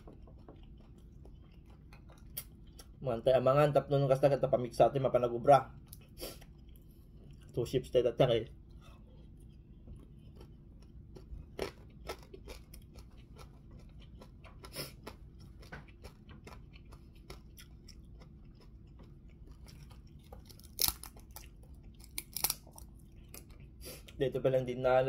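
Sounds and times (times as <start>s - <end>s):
person chewing crunchy food: 0.0s - 3.0s, 5.8s - 7.7s, 8.5s - 24.3s.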